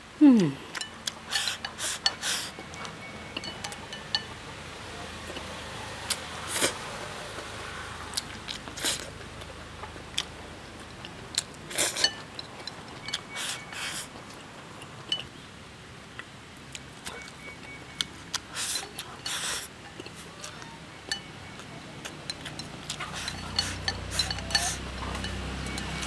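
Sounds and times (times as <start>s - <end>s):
person chewing food: 0.7s - 4.3s, 8.1s - 15.4s, 16.1s - 26.0s
slurping: 0.8s - 3.5s, 18.0s - 21.3s, 22.0s - 26.0s
chopsticks clicking on bowl: 21.1s - 26.0s.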